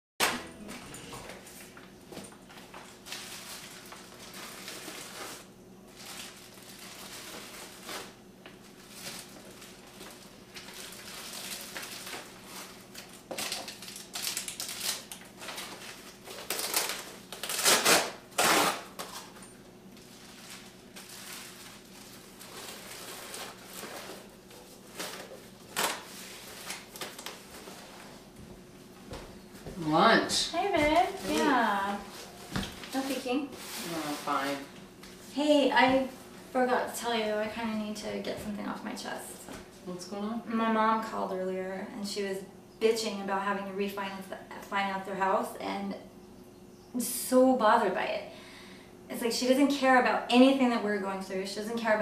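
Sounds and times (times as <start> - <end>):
faint steady hum: 0.2 - 52.0
wrappers crinkling: 0.3 - 28.4, 30.5 - 35.6.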